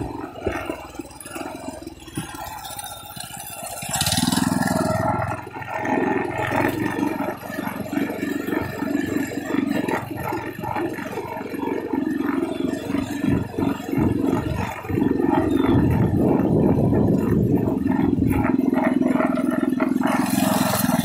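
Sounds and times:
minibike engine running: 0:00.0 - 0:21.0.

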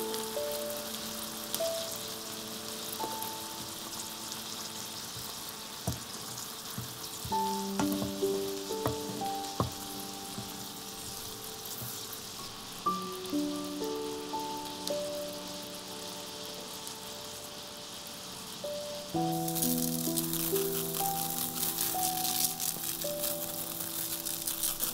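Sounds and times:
food sizzling in a frying pan: 0:00.0 - 0:24.9
soft melodic background music: 0:00.0 - 0:24.9
wooden spoon knocking against pan: 0:06.8 - 0:08.2.

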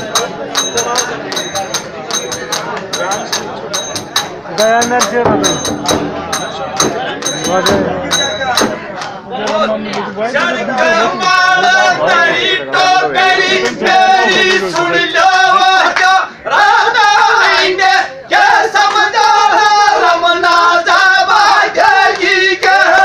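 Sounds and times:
men singing folk song: 0:10.4 - 0:23.0.

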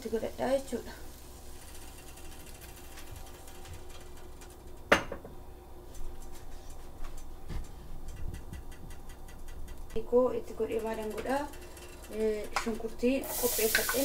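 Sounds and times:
low steady hum: 0:00.0 - 0:14.0
light kitchen clicks: 0:07.0 - 0:10.0.

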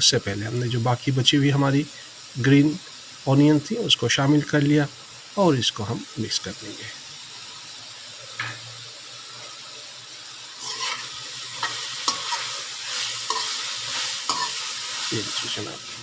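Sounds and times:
vegetables sizzling in oil: 0:00.0 - 0:16.0
spatula scraping metal pan: 0:10.6 - 0:15.1.

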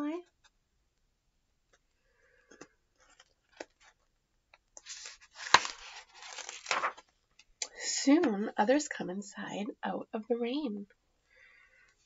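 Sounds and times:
page snapping: 0:04.8 - 0:07.0
paper page rustling: 0:04.8 - 0:07.1.

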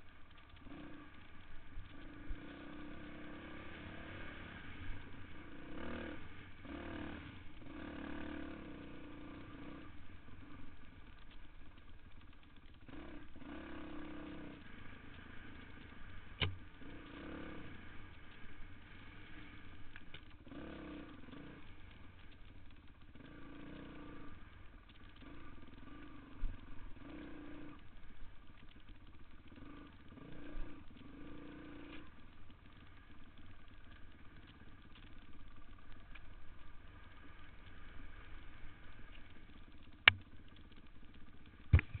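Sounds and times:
dirt bike engine revving: 0:00.6 - 0:10.7, 0:12.6 - 0:19.6, 0:20.4 - 0:22.4, 0:23.0 - 0:27.8, 0:29.4 - 0:35.8.

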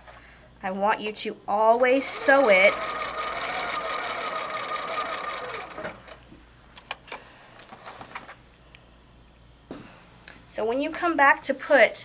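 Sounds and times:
sewing machine motor whine: 0:01.8 - 0:06.2.

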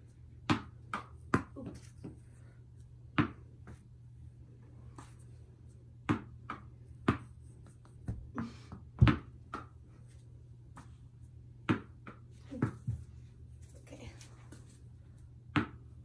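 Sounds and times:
tennis balls smacking into hand: 0:00.4 - 0:01.6, 0:06.0 - 0:09.9, 0:11.6 - 0:12.9.

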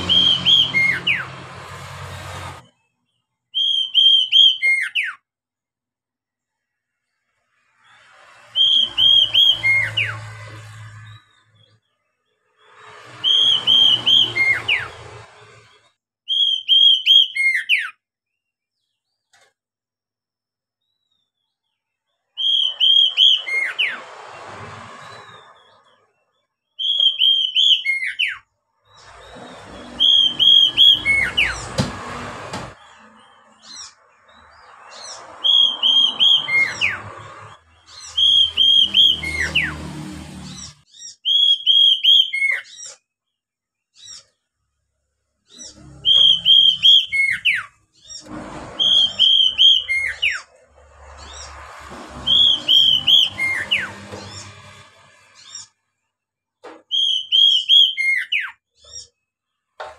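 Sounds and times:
bird singing whistled notes: 0:00.0 - 0:01.3, 0:03.0 - 0:05.2, 0:08.4 - 0:10.3, 0:13.2 - 0:15.0, 0:16.2 - 0:18.5, 0:22.3 - 0:24.0, 0:25.2 - 0:31.6, 0:33.2 - 0:39.7, 0:40.6 - 0:43.0, 0:45.5 - 0:48.2, 0:48.8 - 0:50.5, 0:52.3 - 0:54.8, 0:56.9 - 0:59.1
rough noisy sound: 0:00.0 - 0:02.7, 0:07.5 - 0:11.6, 0:12.6 - 0:15.9, 0:28.9 - 0:33.6, 0:34.3 - 0:40.8, 0:45.6 - 0:55.6.

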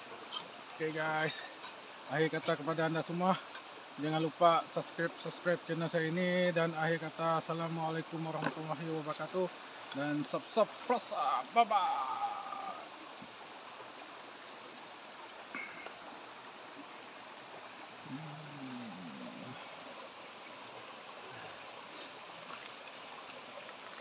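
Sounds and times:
stream running over stones: 0:00.0 - 0:24.0
low drawn-out animal call: 0:18.0 - 0:20.0.

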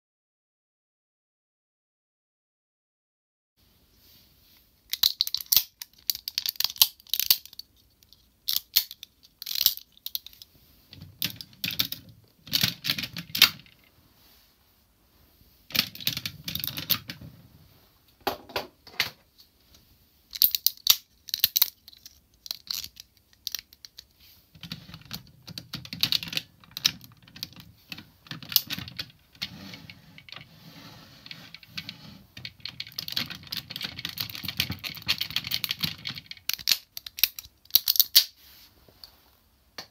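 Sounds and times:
plastic toy parts clicking: 0:04.9 - 0:13.8, 0:15.7 - 0:17.2, 0:20.3 - 0:30.5, 0:31.2 - 0:38.3
plastic parts rattling: 0:04.9 - 0:13.9, 0:15.7 - 0:17.2, 0:20.3 - 0:30.6, 0:31.2 - 0:38.3.

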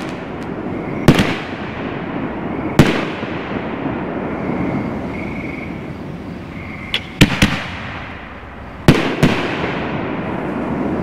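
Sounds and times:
firework shells bursting: 0:00.0 - 0:01.8, 0:06.9 - 0:08.2.

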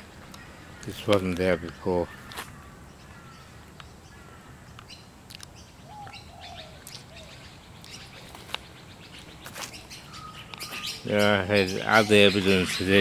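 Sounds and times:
bird chirps and whistled calls: 0:04.9 - 0:13.0.

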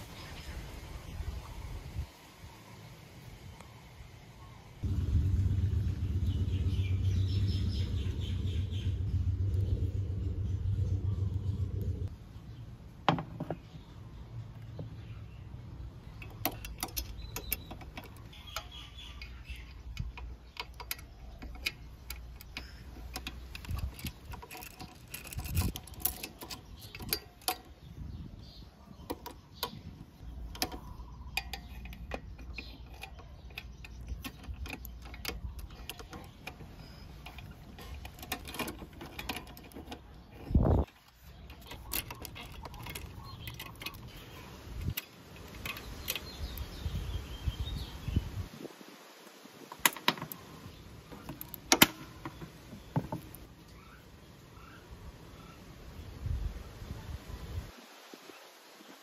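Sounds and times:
steady low rumble: 0:04.8 - 0:13.0
ratchet clicking against metal: 0:16.3 - 0:27.7.

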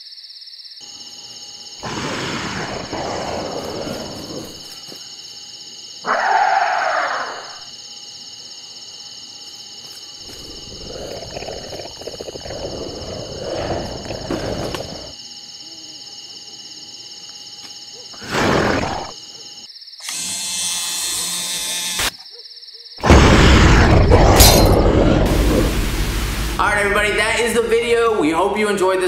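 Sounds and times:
monster roaring: 0:10.3 - 0:15.1, 0:23.0 - 0:26.0.

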